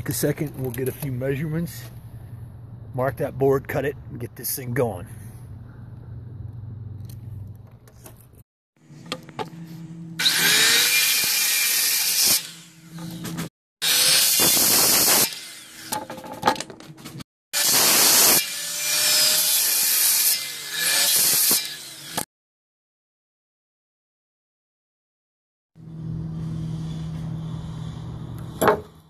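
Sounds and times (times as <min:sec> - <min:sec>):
circular saw cutting board: 0:08.9 - 0:16.8.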